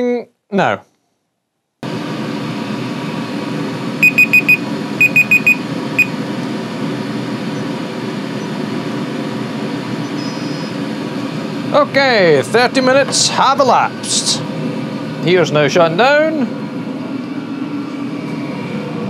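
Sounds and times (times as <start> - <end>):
diesel air heater running: 1.8 - 19.0
phone timer alarm beeps: 4.0 - 6.1.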